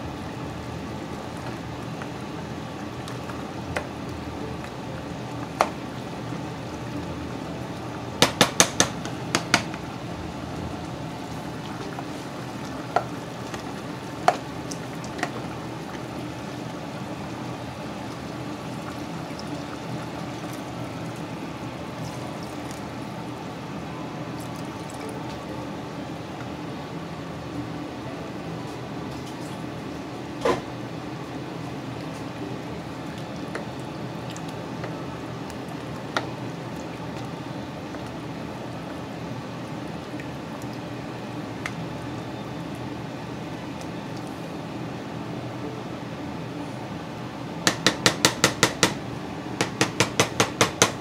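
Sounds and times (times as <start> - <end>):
stew bubbling in a pot: 0.0 - 27.5, 29.0 - 51.0
plastic ladle knocking pot: 47.7 - 49.0, 49.6 - 51.0.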